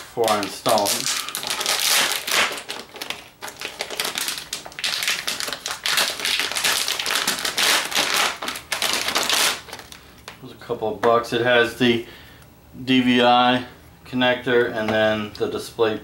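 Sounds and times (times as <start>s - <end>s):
plastic bag crinkling: 0.2s - 10.4s.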